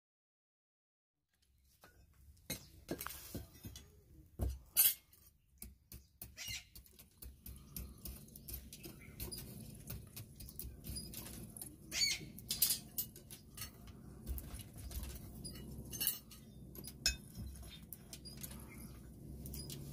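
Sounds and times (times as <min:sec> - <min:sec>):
low steady hum: 0:07.0 - 0:19.9
iron tools clattering on floor: 0:08.8 - 0:18.9.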